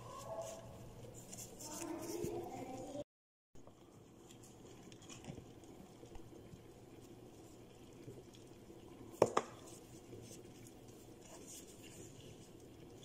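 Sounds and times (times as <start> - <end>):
hands handling leaves and rice: 0.0 - 2.8.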